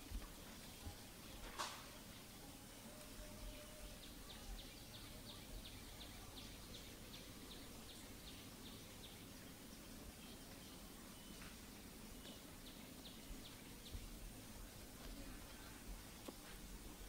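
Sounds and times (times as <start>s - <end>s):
faint outdoor ambience: 0.0s - 17.0s.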